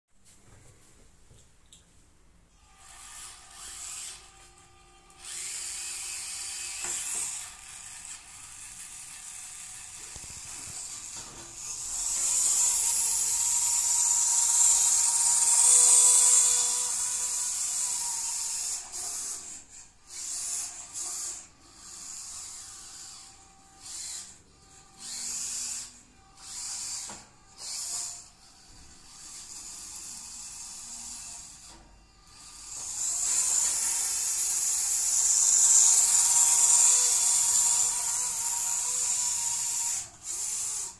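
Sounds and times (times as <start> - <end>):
toy truck motor whining: 2.5 - 40.9.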